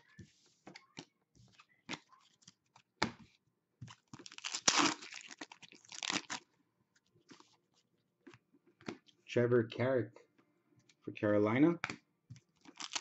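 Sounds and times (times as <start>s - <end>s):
foil pack tearing: 4.2s - 6.4s, 12.7s - 13.0s.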